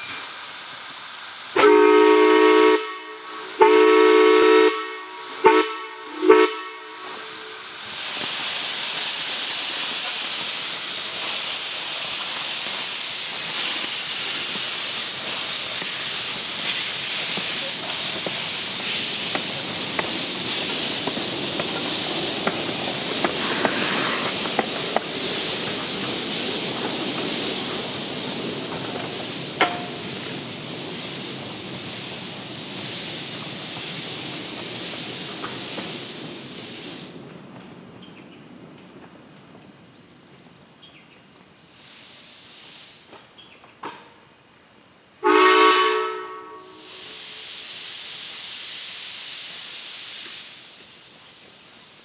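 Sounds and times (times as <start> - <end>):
steam hissing: 0.0 - 37.3, 41.6 - 43.1, 45.2 - 52.0
steam locomotive chime whistle: 1.6 - 7.7, 45.2 - 47.2.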